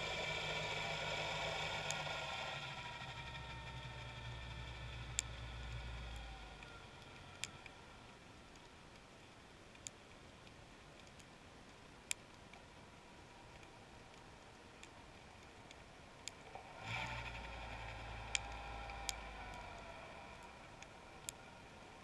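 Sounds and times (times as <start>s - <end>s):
distant motor hum underwater: 0.0s - 9.2s, 12.4s - 22.0s
sharp underwater clicks: 6.1s - 12.7s, 13.4s - 21.5s.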